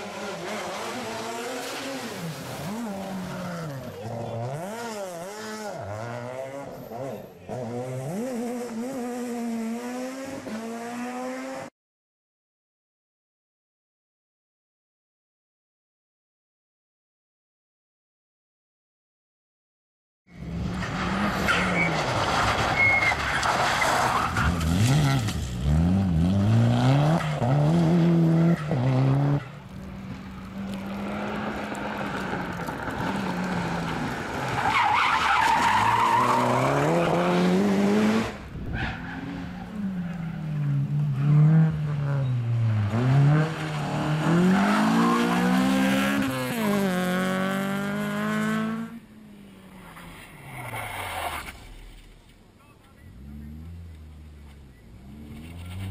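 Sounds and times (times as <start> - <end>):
rally car engines revving: 0.0 - 11.7, 20.3 - 52.2, 52.8 - 55.9
tyres squealing and skidding: 20.4 - 25.4, 31.9 - 37.6, 38.6 - 42.9, 43.6 - 46.3, 49.7 - 52.1.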